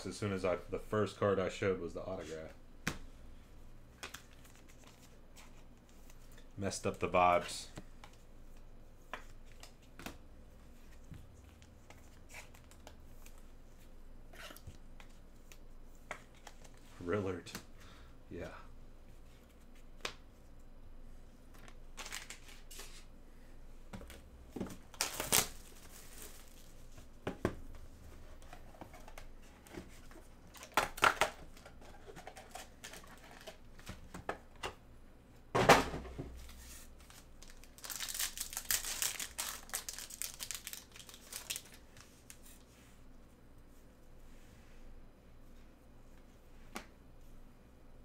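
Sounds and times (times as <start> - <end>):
foil packs crinkling and tearing: 24.9 - 26.7, 37.0 - 41.8.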